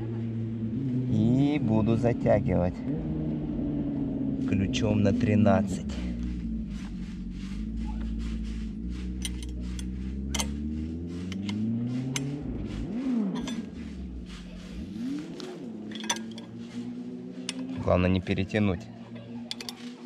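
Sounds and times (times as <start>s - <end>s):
low engine-like drone: 0.0s - 20.0s
metal wrench clicks: 9.2s - 10.6s, 15.9s - 16.5s, 19.5s - 19.8s.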